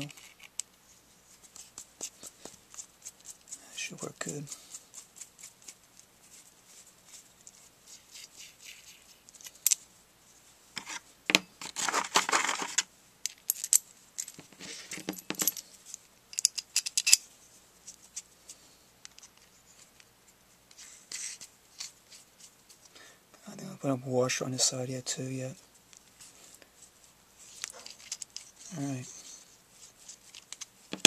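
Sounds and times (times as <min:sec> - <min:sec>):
small metal parts clinking: 0:00.0 - 0:00.6, 0:12.3 - 0:17.3, 0:27.5 - 0:28.9
scraping rustle: 0:11.6 - 0:12.8.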